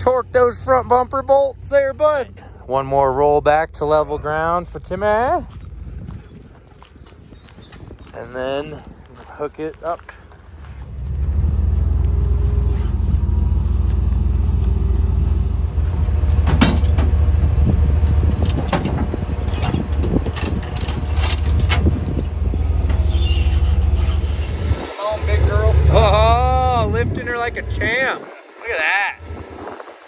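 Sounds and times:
truck engine low drone: 0.0s - 7.2s, 8.3s - 30.0s
metallic clinks and knocks of chains: 18.2s - 22.9s.

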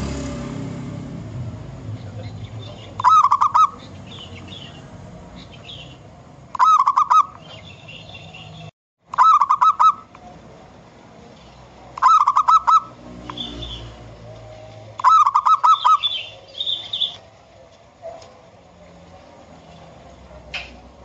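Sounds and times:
dove cooing: 2.1s - 4.8s, 6.5s - 8.4s, 9.2s - 10.2s, 12.0s - 17.3s.

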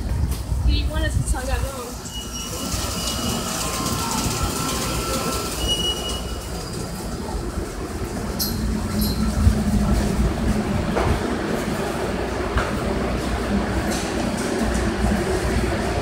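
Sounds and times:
subway train hum: 0.0s - 16.0s
subway train wheel squeal: 1.8s - 10.2s.

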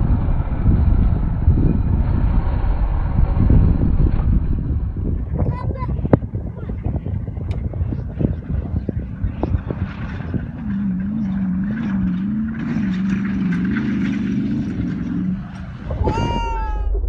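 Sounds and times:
truck engine revving: 0.0s - 17.0s
loud high cry: 15.9s - 17.0s.

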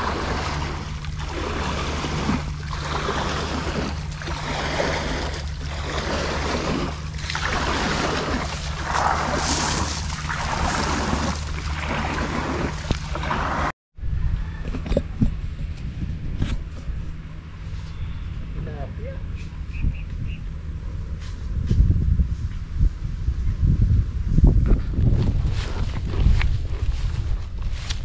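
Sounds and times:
water sloshing in surges: 0.0s - 13.7s
low motor hum: 0.0s - 28.0s.

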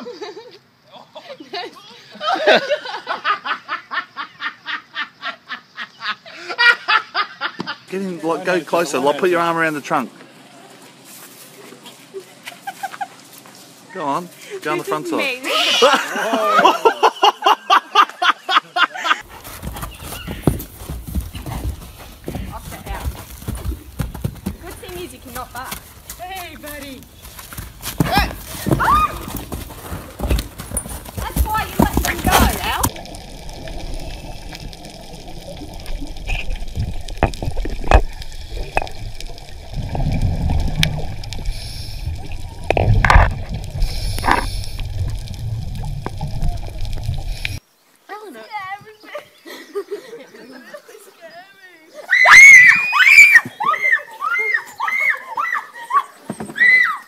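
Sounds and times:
horse hooves thudding on dirt: 19.2s - 47.6s
bubbling: 27.0s - 47.6s
underwater gurgling and rushing: 31.5s - 47.6s
low rumble: 32.1s - 47.6s.

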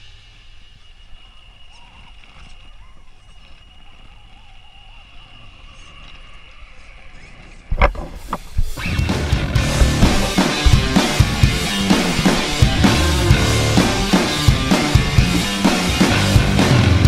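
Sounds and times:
tyres crunching on stones: 7.7s - 16.1s.

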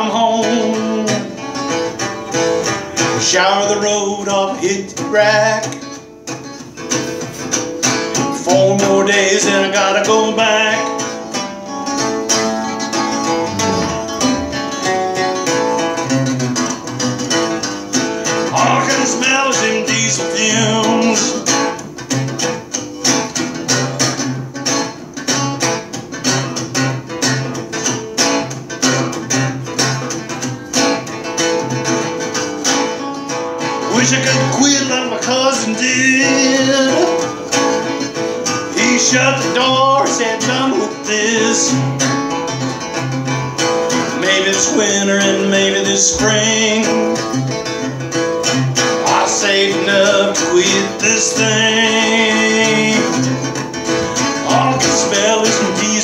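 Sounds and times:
man singing: 0.0s - 1.6s, 3.0s - 5.9s, 8.2s - 11.2s, 13.4s - 14.8s, 18.2s - 21.6s, 33.8s - 37.3s, 38.5s - 42.2s, 44.0s - 47.4s, 48.9s - 53.5s, 54.1s - 56.0s
acoustic guitar strumming: 0.0s - 56.0s.

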